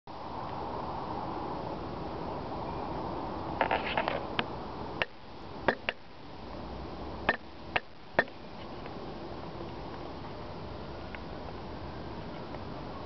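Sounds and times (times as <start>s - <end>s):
steady outdoor hiss: 0.1s - 13.0s.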